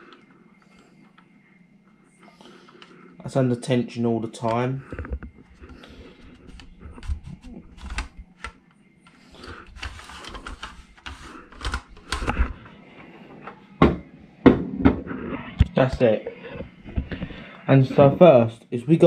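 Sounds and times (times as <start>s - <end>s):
plastic clicks and rustling: 4.4s - 12.7s.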